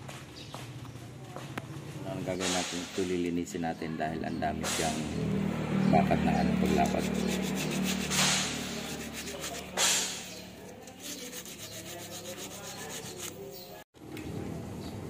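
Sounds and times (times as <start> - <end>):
abrasive block scraping metal: 6.6 - 13.5.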